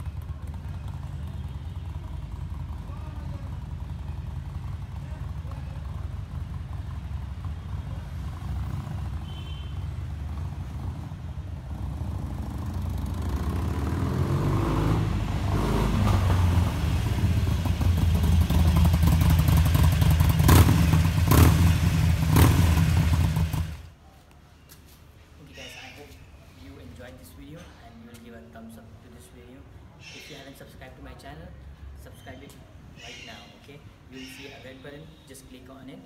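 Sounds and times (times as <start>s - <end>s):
motorcycle engine rumble: 0.0s - 24.0s.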